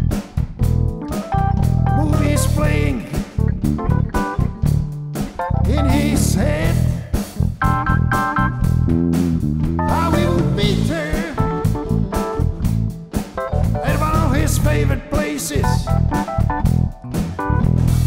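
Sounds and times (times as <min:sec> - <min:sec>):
blues band playing: 0:00.0 - 0:18.0
man singing: 0:02.0 - 0:03.5, 0:05.6 - 0:07.4, 0:09.8 - 0:12.2, 0:13.7 - 0:16.0.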